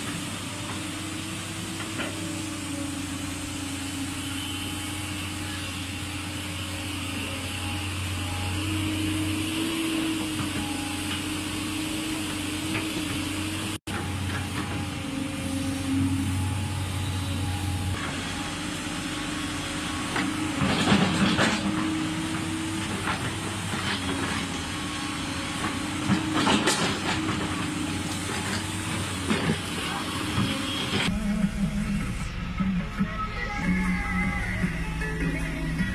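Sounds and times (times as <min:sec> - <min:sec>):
excavator diesel engine running: 0:00.0 - 0:35.9
hissing clattering bursts: 0:19.7 - 0:31.2.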